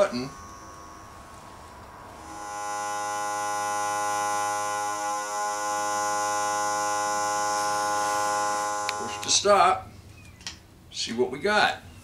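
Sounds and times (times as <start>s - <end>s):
pump motor buzzing hum: 0.0s - 9.4s.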